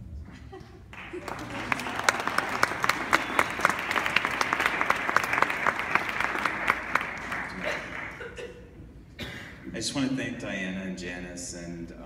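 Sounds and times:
audience applauding: 0.9 - 8.4.

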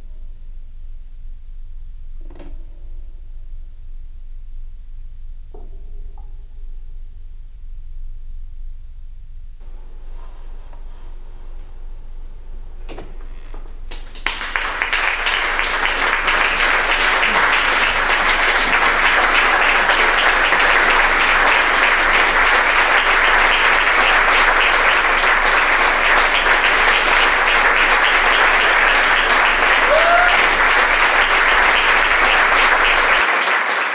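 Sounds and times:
audience applauding: 13.9 - 33.9.

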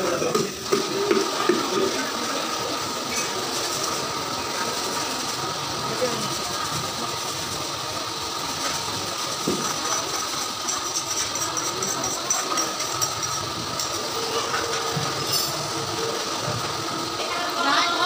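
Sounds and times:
mechanical hiss and hum: 0.0 - 18.0.

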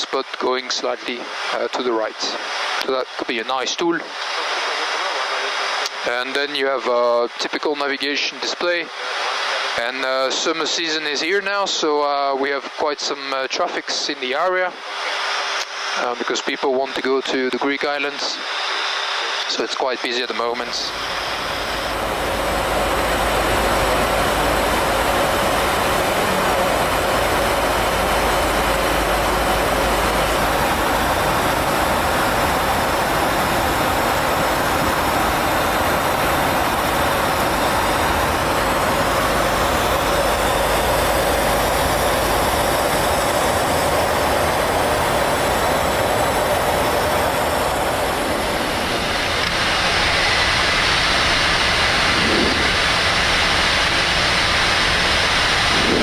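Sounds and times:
aircraft engine noise: 0.0 - 56.0
airflow rush: 20.5 - 56.0.

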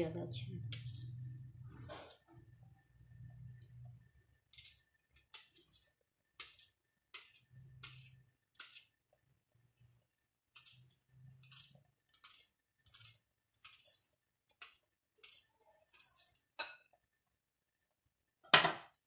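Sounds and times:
knife slicing onion: 0.1 - 1.4, 4.4 - 9.0, 10.5 - 16.6.

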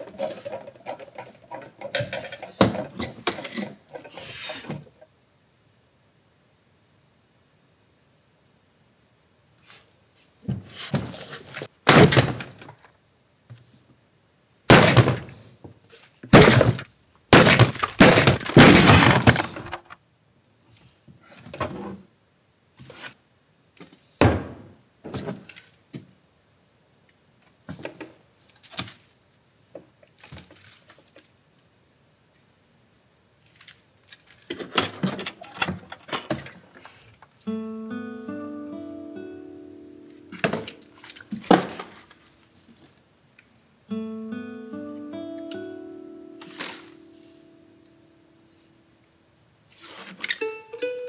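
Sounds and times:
box lid smashed and torn open: 11.9 - 12.8, 14.7 - 15.4, 16.3 - 20.0, 40.4 - 42.1.

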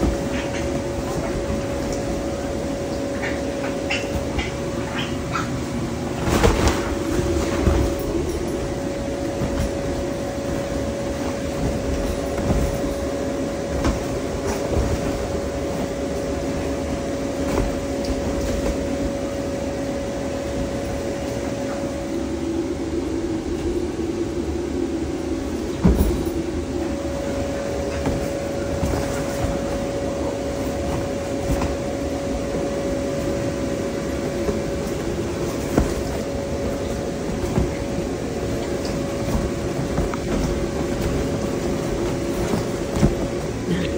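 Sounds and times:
blower fan humming: 0.0 - 43.9.

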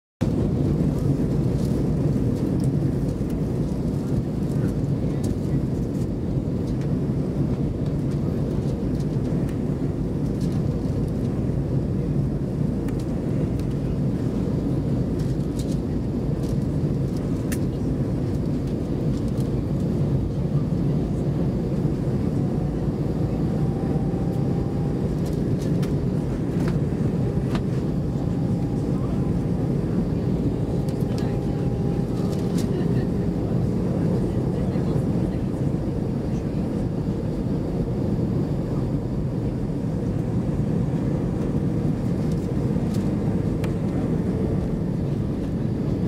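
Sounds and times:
airplane cabin engine drone: 0.2 - 46.0
faint steady whine: 17.7 - 46.0.

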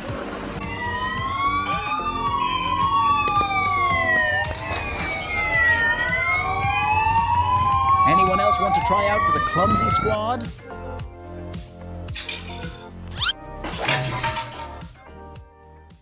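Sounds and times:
police sirens wailing: 0.6 - 10.8.

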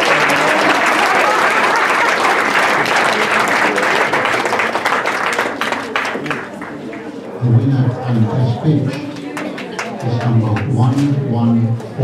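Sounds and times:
audience applauding: 0.0 - 7.1, 8.9 - 10.7.

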